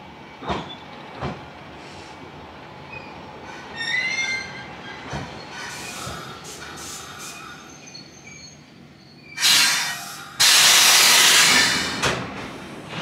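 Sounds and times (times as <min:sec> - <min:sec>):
compressed air hissing: 0:09.4 - 0:12.0.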